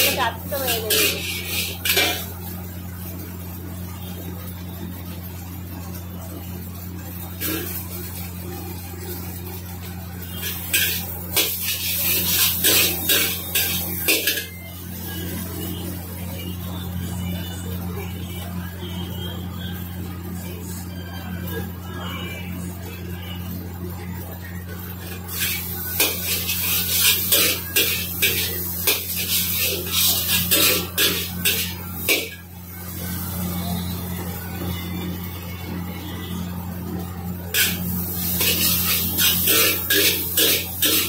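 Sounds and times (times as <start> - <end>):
spatula scraping and clanking wok: 0.0 - 2.5, 7.4 - 7.9, 10.2 - 15.7, 25.0 - 32.5, 37.5 - 41.0
noodles sizzling in a wok: 0.0 - 41.0.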